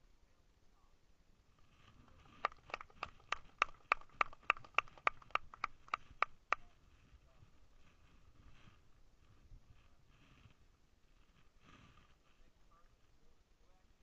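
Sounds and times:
person clapping: 2.2 - 6.6.

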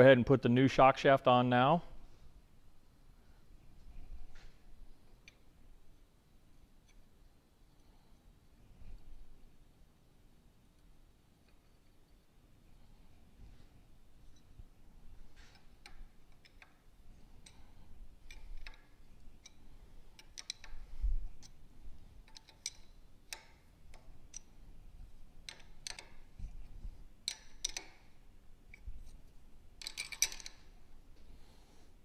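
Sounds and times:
metallic clicks and taps: 5.2 - 5.4, 15.4 - 19.6, 20.2 - 21.6, 22.2 - 24.5, 25.4 - 26.6, 27.2 - 28.1, 29.8 - 30.7
metal parts clinking: 20.2 - 20.8, 22.2 - 24.5, 25.4 - 26.3, 27.2 - 28.0, 29.8 - 30.8.

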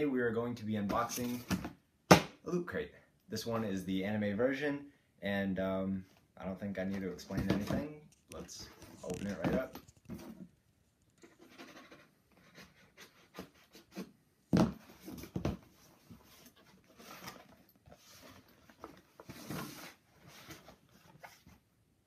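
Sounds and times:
cardboard lid rustling: 11.2 - 21.6.

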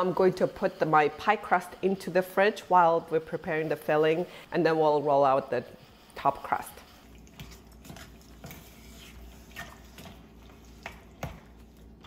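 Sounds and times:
spoon stirring wet fruit: 6.1 - 12.0.

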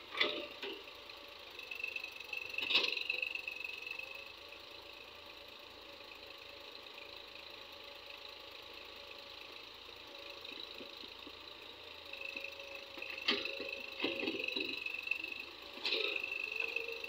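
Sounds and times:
excavators digging soil: 0.0 - 4.9, 10.0 - 17.0
tractor diesel engines running: 0.0 - 17.0.

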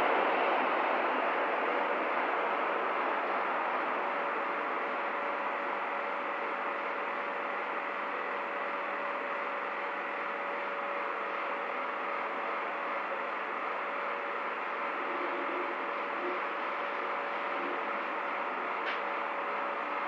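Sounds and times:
street traffic: 0.0 - 6.2
faint hum: 0.0 - 20.0.

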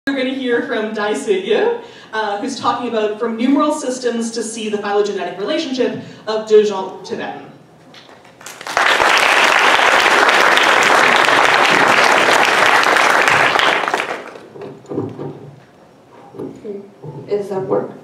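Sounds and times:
audience applauding: 8.0 - 14.6.

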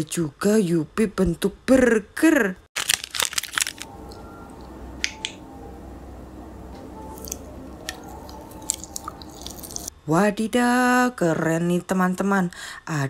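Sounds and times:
chewing gummy candy: 2.8 - 3.9, 7.1 - 9.9.

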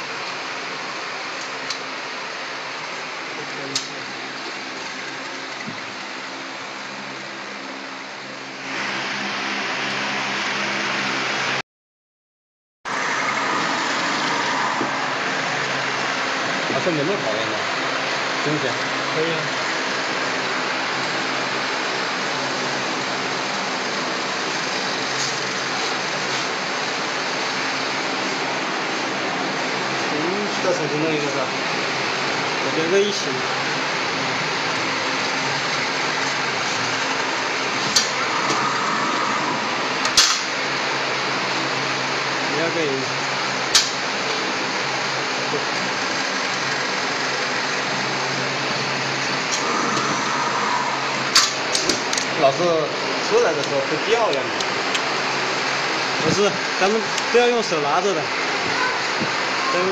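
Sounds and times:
machine whirring: 12.9 - 59.9
sharp click: 40.0 - 40.5, 43.7 - 44.0.

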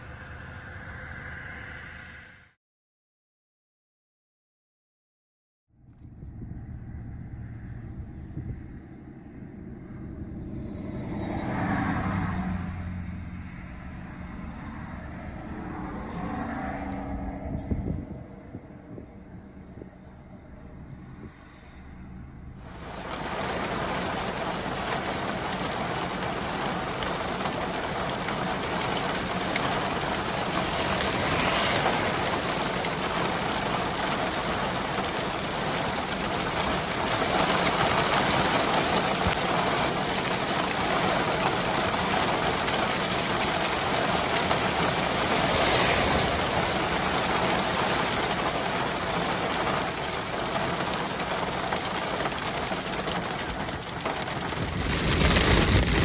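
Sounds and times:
steady rain falling: 22.6 - 56.0.

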